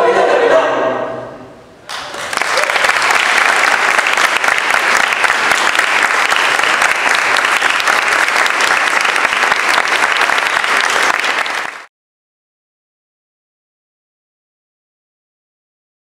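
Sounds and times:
audience applauding: 1.9s - 11.9s.

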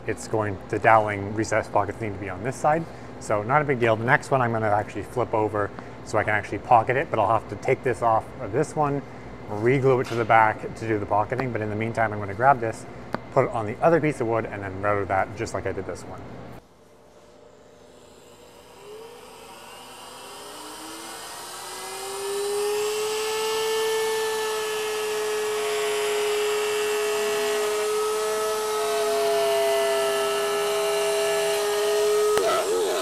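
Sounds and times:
router motor whining: 17.2s - 33.0s
router bit cutting wood: 17.8s - 33.0s.

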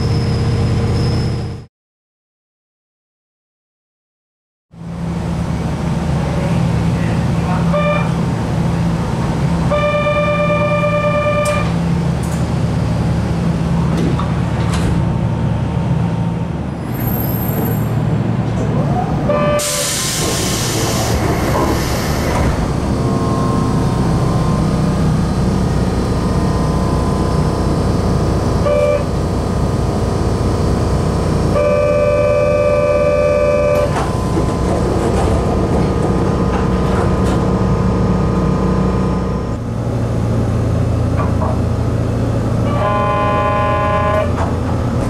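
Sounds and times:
train equipment hum: 4.8s - 45.0s
pneumatic door air hiss: 19.6s - 22.4s.

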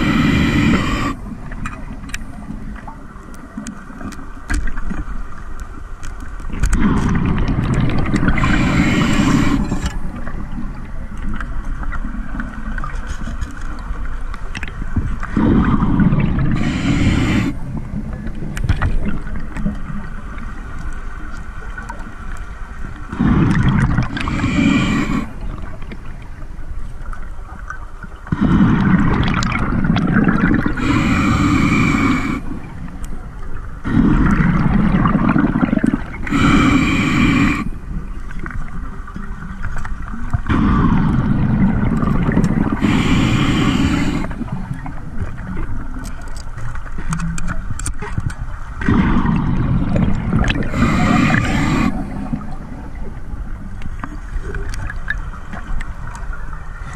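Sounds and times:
regulator hissing breath: 0.0s - 1.3s, 8.2s - 9.9s, 16.6s - 17.6s, 24.1s - 25.4s, 30.7s - 32.6s, 36.2s - 37.8s, 42.7s - 44.6s, 50.5s - 52.5s
exhaled bubbles rushing: 6.6s - 10.7s, 23.1s - 26.0s, 28.3s - 32.9s, 33.9s - 37.6s, 40.4s - 45.9s, 48.8s - 53.6s.

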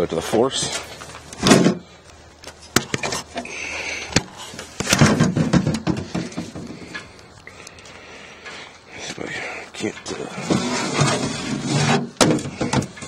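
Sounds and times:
rustling: 0.6s - 13.0s
short scrape: 10.4s - 12.2s.

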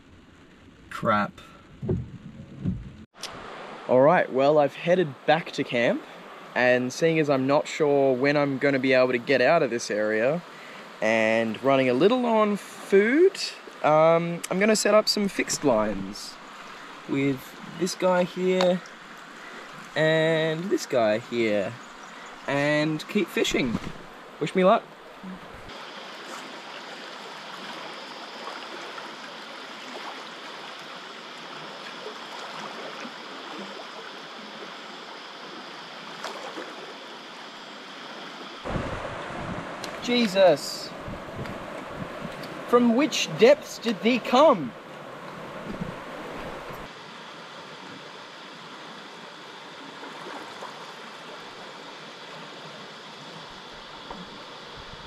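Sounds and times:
river water rushing: 3.2s - 9.2s, 10.0s - 55.0s.

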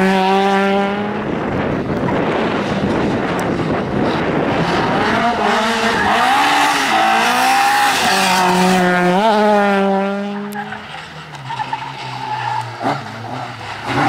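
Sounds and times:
rally car engine revving: 0.0s - 14.0s.

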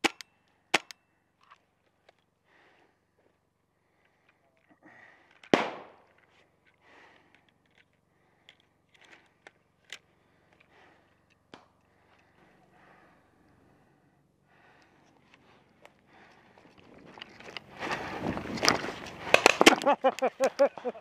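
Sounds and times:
loud sharp paintball shot: 5.5s - 6.0s.

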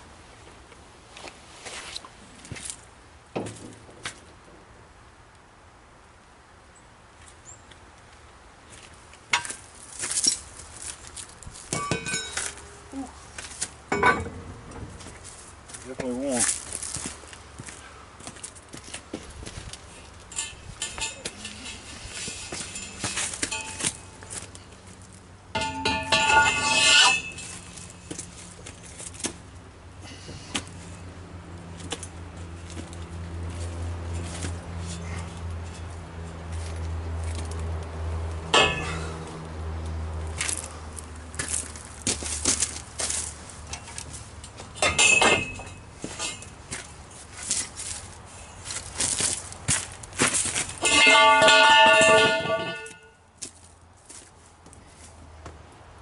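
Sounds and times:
steel tools clanking: 11.7s - 12.6s, 13.9s - 14.4s, 20.0s - 24.6s, 25.5s - 28.2s, 38.5s - 39.2s, 44.7s - 46.6s, 50.8s - 53.1s
loud metallic scrape: 20.3s - 24.2s, 25.6s - 28.0s, 50.8s - 53.1s.

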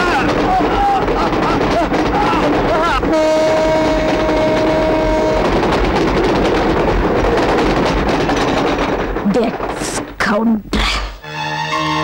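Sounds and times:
dense percussive clatter: 0.0s - 10.4s.

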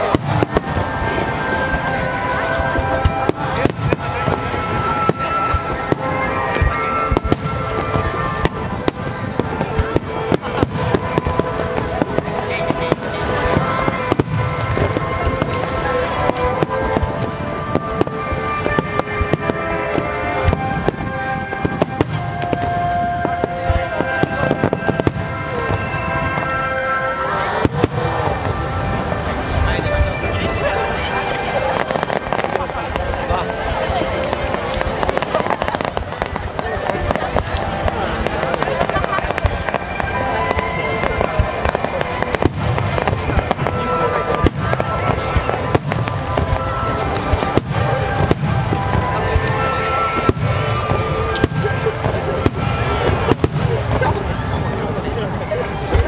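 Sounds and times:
background haze: 0.0s - 56.0s
fireworks bursting with bangs: 0.0s - 56.0s
music playing: 0.0s - 56.0s.

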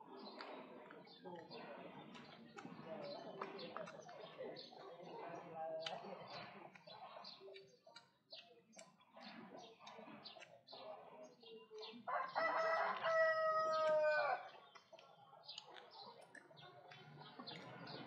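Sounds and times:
rooster crowing: 12.1s - 14.4s.

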